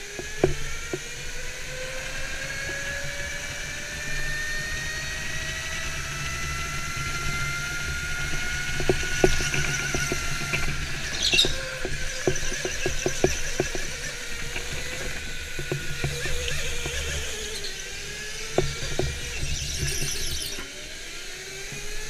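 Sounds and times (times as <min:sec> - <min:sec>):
go-kart motor whine: 0:00.0 - 0:22.0
tyre squeals: 0:07.2 - 0:20.8.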